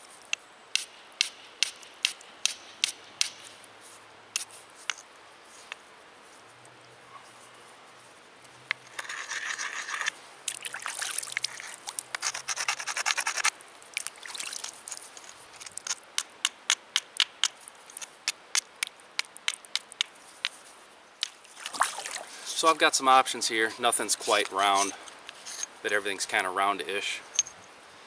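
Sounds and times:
stone scraping and grinding on slate: 0:08.7 - 0:10.2, 0:11.4 - 0:13.5, 0:14.8 - 0:16.3, 0:24.2 - 0:25.7.

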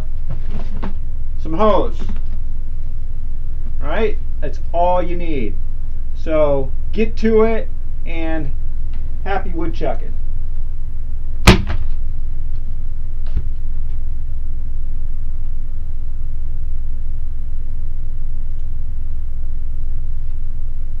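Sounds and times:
steady low rumble: 0:00.0 - 0:21.0
sharp loud knock: 0:11.4 - 0:11.9.

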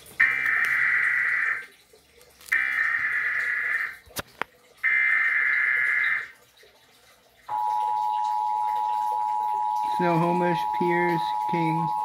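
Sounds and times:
two-tone attention signal: 0:07.5 - 0:12.0.

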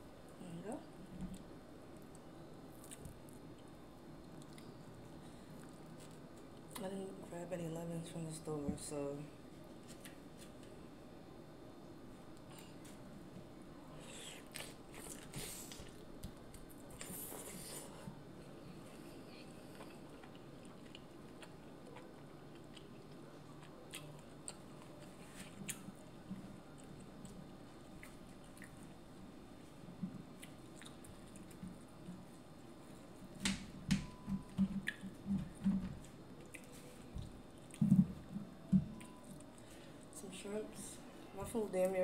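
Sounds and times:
chewing and wet mouth sounds: 0:01.3 - 0:06.9, 0:18.9 - 0:33.2, 0:34.1 - 0:40.2.

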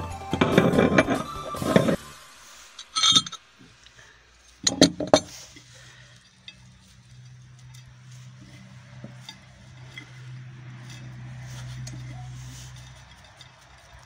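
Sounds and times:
faint clicks and rustling: 0:02.8 - 0:14.0.

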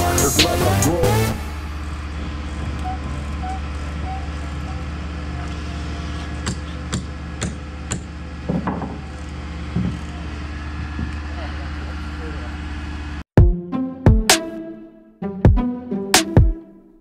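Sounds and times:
crane engine running: 0:00.0 - 0:13.2
sharp knocks: 0:06.4 - 0:09.1.

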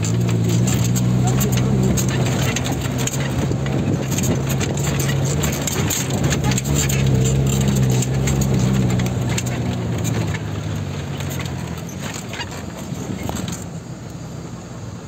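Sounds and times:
rattles and knocks: 0:00.0 - 0:13.8
vehicle engine humming: 0:00.0 - 0:15.0.

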